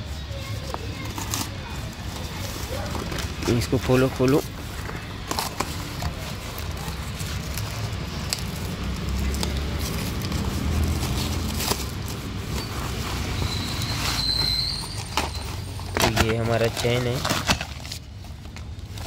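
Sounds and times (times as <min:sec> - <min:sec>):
plastic wrapping crackling: 0:00.0 - 0:19.0
cardboard box tearing: 0:05.3 - 0:18.1.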